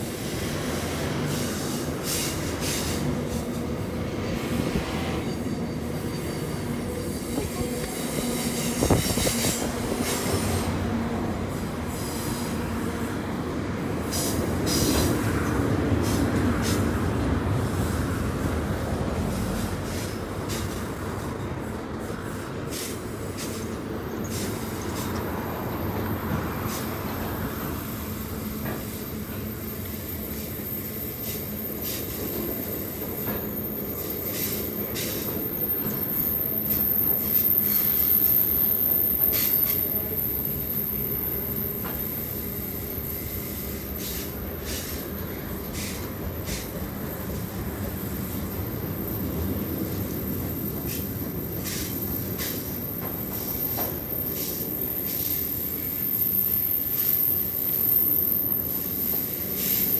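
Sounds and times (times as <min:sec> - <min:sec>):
train wheels rumbling on rail: 0:00.0 - 0:59.9
rail clicks: 0:19.6 - 0:59.9
high scraping wheel hisses: 0:42.2 - 0:47.4.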